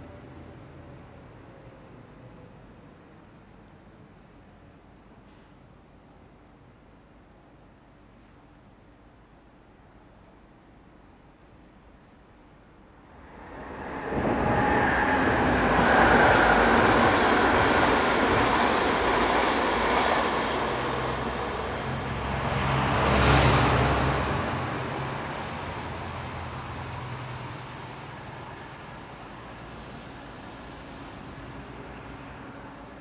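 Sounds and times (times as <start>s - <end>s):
passenger train passing at speed: 0.0s - 5.1s, 12.8s - 33.0s
train wheels on rails: 13.2s - 33.0s.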